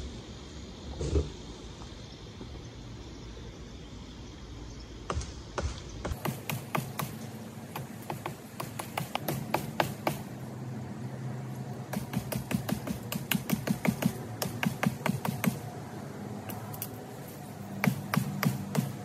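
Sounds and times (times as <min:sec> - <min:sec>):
blade chopping wood: 0:05.1 - 0:10.3, 0:11.9 - 0:15.7, 0:17.8 - 0:19.0.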